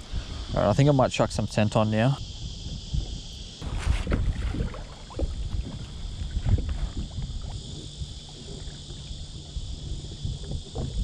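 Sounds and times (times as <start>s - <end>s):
high insect drone: 0.0s - 11.0s
wind buffeting microphone: 0.0s - 11.0s
waves slapping kayak hull: 3.6s - 11.0s.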